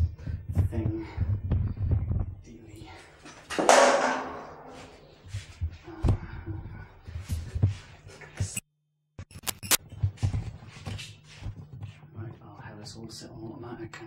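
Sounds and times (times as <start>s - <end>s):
footsteps: 3.2s - 6.3s, 9.9s - 12.5s.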